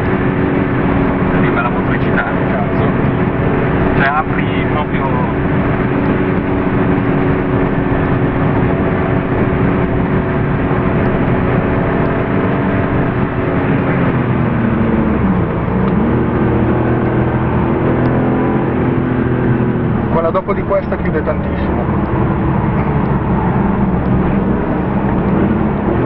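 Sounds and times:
car engine revving from inside cabin: 0:00.0 - 0:26.0.

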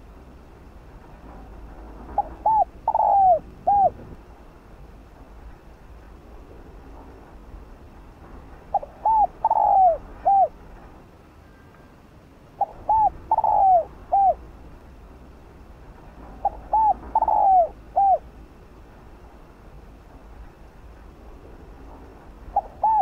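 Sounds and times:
dove cooing: 0:02.2 - 0:04.2, 0:08.7 - 0:10.6, 0:12.6 - 0:14.4, 0:16.4 - 0:18.3, 0:22.5 - 0:23.0.

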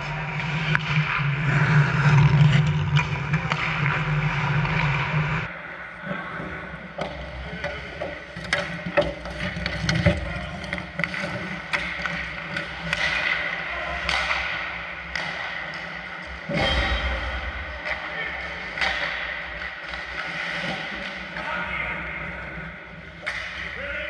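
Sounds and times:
skate blades scraping ice: 0:00.0 - 0:05.5, 0:07.2 - 0:16.6
hockey sticks and puck clacking: 0:00.0 - 0:24.0.

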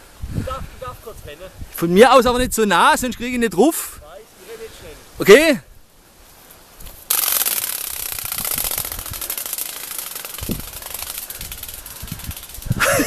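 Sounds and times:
toy wings flapping rattle: 0:06.8 - 0:13.0.

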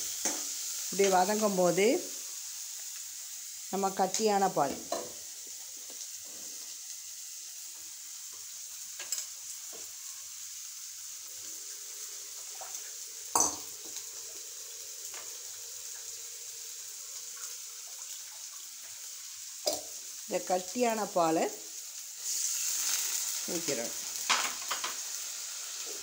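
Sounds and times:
onions sizzling in a pan: 0:00.0 - 0:26.0.

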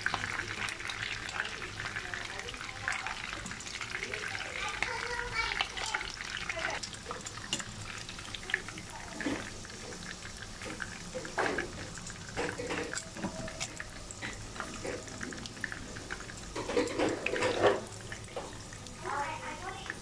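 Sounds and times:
meat sizzling in hot oil: 0:00.0 - 0:20.0
metal tongs clicking against pan: 0:07.5 - 0:07.7.

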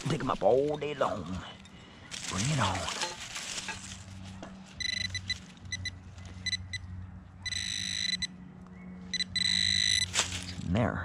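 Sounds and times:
metal detector beeping: 0:04.8 - 0:06.8, 0:07.4 - 0:08.3, 0:09.1 - 0:10.2.

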